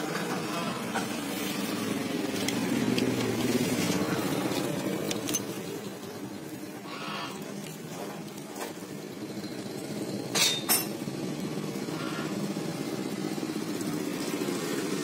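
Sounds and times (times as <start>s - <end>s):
engine hum: 0.0s - 15.0s.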